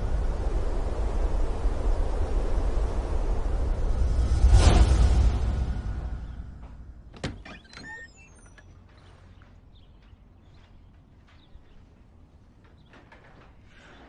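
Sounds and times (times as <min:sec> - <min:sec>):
low steady hum: 0:00.0 - 0:14.0
faint high chirps: 0:07.4 - 0:12.0.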